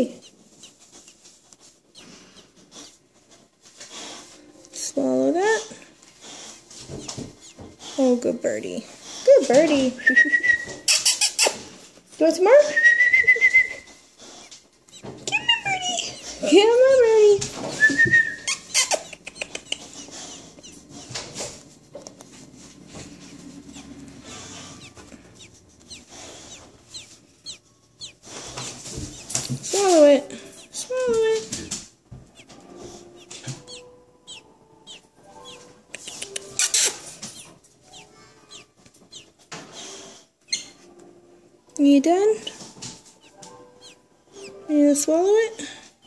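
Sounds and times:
bird clicks and squeaks: 0:10.6 - 0:11.7, 0:14.4 - 0:16.5, 0:17.6 - 0:22.3, 0:23.2 - 0:32.6, 0:33.2 - 0:40.9, 0:42.4 - 0:44.6
faint high peeps: 0:33.2 - 0:39.3.

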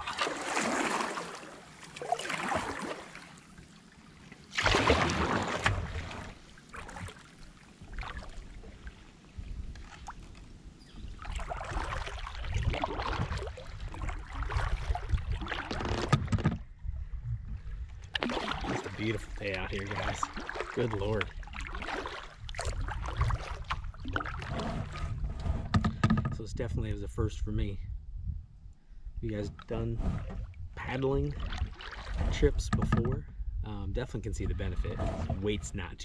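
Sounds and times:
paddle strokes splashing in water: 0:00.0 - 0:16.4, 0:18.1 - 0:26.0, 0:31.3 - 0:32.5
low rumble: 0:22.6 - 0:31.6.

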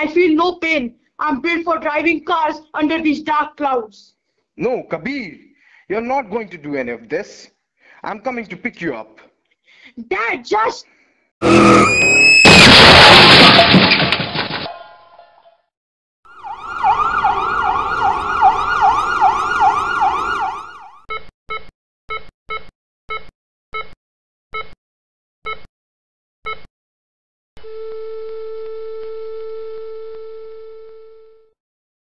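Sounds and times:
emergency siren wailing: 0:11.4 - 0:12.4, 0:16.3 - 0:21.0
tyres screeching: 0:11.4 - 0:13.0
loud car crash: 0:11.4 - 0:15.0.

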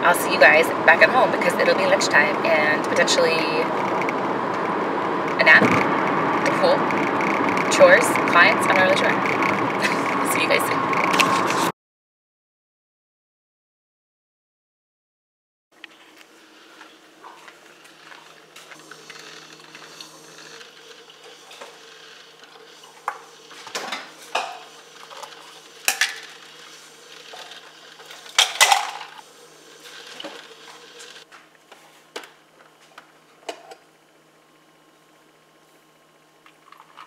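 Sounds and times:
low hum: 0:00.0 - 0:11.7.

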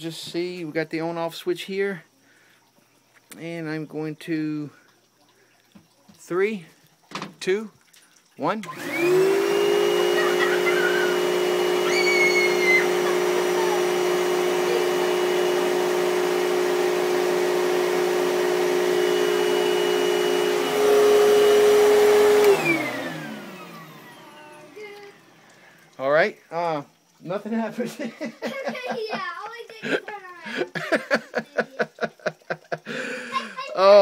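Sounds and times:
vacuum cleaner running: 0:08.6 - 0:25.4.

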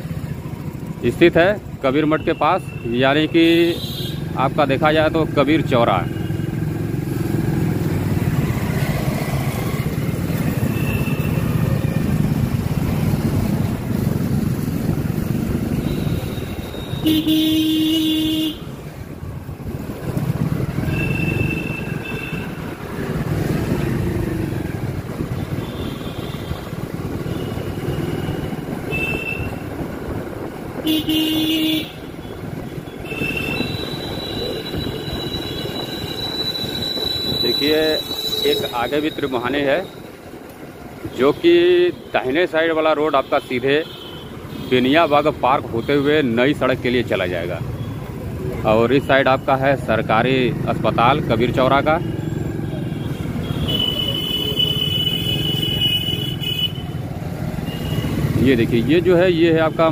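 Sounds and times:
motorcycle running: 0:00.0 - 0:43.0, 0:44.0 - 0:59.9
vehicle horns honking: 0:02.2 - 0:04.3, 0:15.7 - 0:18.8, 0:20.8 - 0:22.7, 0:25.4 - 0:29.6, 0:30.8 - 0:39.3, 0:52.8 - 0:57.0, 0:57.6 - 0:58.3.

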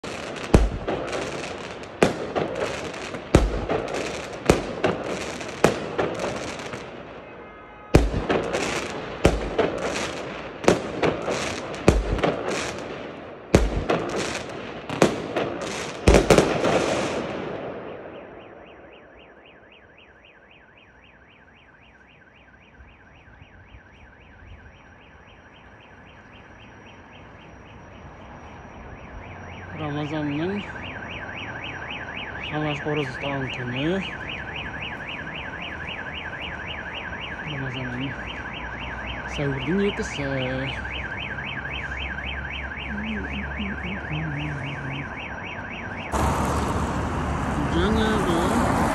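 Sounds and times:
fireworks crackling: 0:00.0 - 0:07.2, 0:08.0 - 0:17.8, 0:46.1 - 0:48.9.

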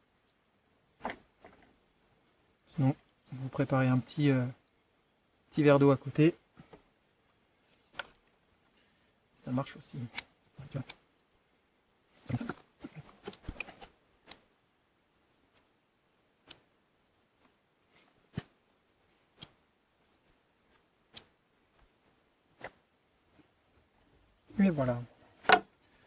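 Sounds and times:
handling noises: 0:12.2 - 0:14.4.

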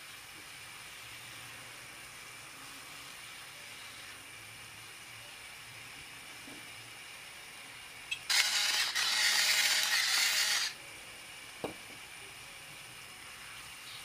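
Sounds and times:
salt grinder grinding: 0:08.3 - 0:10.8.

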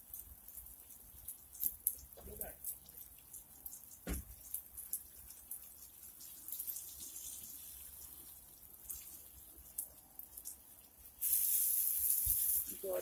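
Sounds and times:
water sprinkling onto wet soil: 0:00.0 - 0:13.0.

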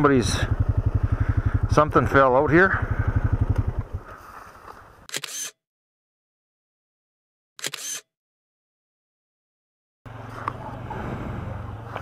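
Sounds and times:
engine shutting off: 0:00.2 - 0:04.2.

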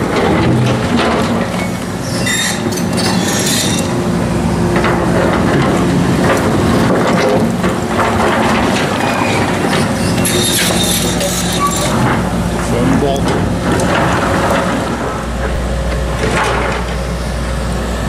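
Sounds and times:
excavator engine running: 0:00.0 - 0:18.0
bucket scraping through rubble: 0:06.8 - 0:15.6.

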